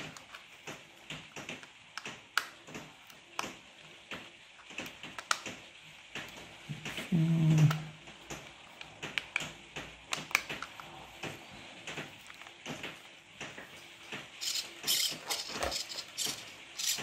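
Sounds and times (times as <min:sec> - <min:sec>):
man murmuring: 0:07.1 - 0:07.9.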